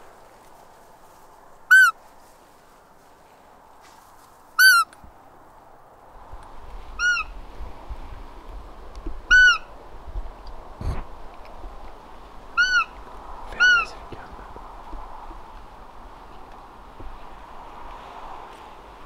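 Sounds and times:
deer call squeaks: 1.7 - 2.0, 4.6 - 4.9, 9.3 - 9.7, 12.6 - 13.0, 13.6 - 13.9.

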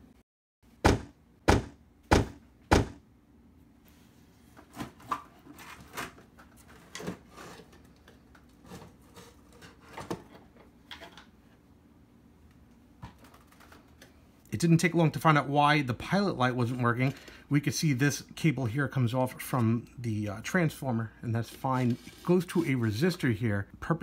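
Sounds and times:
sharp knocks: 0.8 - 3.0.

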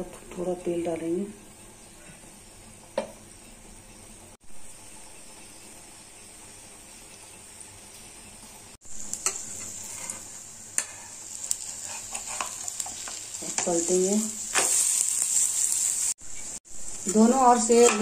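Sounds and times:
pancake sizzling in hot oil: 1.1 - 18.0
metal spatula scraping pan: 9.2 - 13.8, 17.2 - 18.0.

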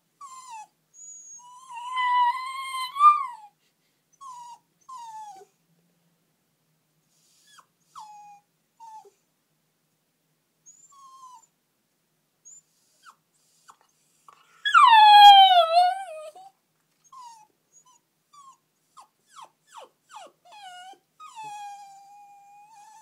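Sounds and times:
puppy whimpering: 0.2 - 3.5, 14.6 - 23.0.

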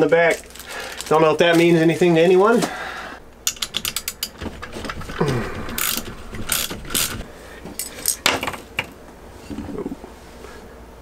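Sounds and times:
ratchet wrench clicking: 3.4 - 4.4, 5.8 - 7.2
metal parts clinking: 3.4 - 7.2.

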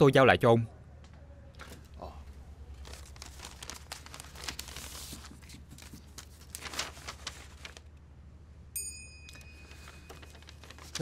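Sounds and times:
paper rustling: 2.7 - 7.9, 9.3 - 11.0.

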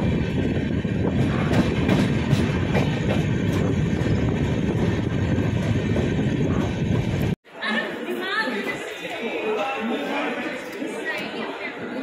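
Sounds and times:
train coach rumble: 0.0 - 7.4.

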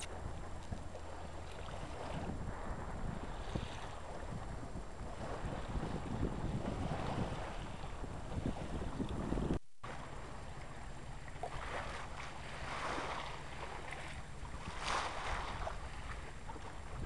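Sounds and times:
low wind rumble: 0.0 - 17.0
water rushing along boat hull: 0.0 - 17.0.

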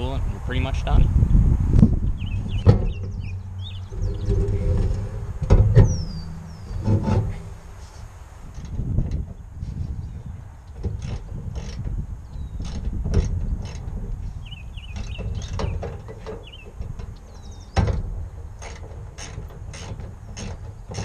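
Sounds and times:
wind rumble on microphone: 0.0 - 21.0.

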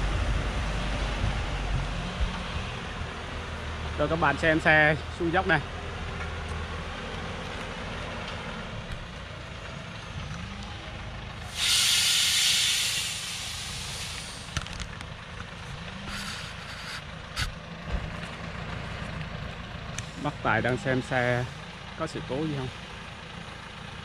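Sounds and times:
diesel truck engine running: 0.0 - 24.0
air brake hiss: 11.5 - 14.6, 16.1 - 17.5.

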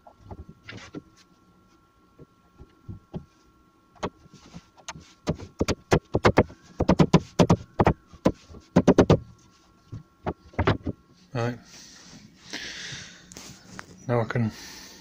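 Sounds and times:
sharp wooden knocks: 4.8 - 9.2, 9.9 - 11.0.

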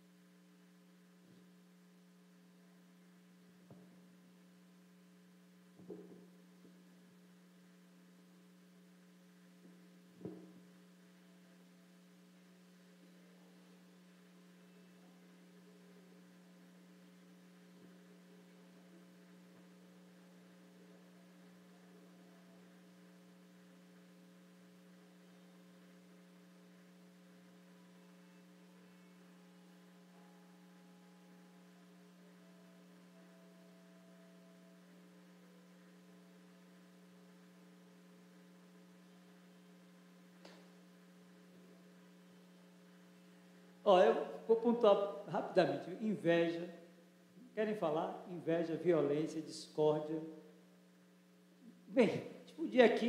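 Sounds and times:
electrical hum: 0.0 - 53.0.

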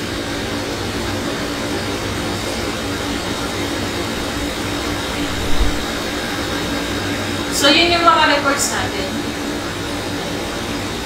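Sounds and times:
low constant hum: 0.0 - 11.0
even hiss: 3.9 - 9.9.

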